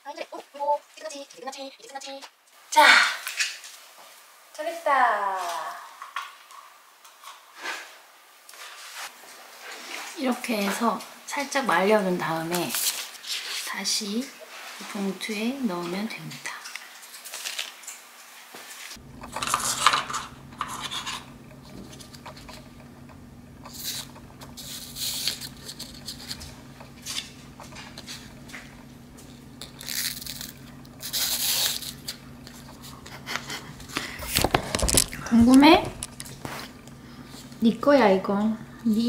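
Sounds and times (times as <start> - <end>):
plastic and paper rustling: 12.5 - 13.9, 16.5 - 18.0, 23.6 - 37.6
steady low hum: 19.0 - 39.0.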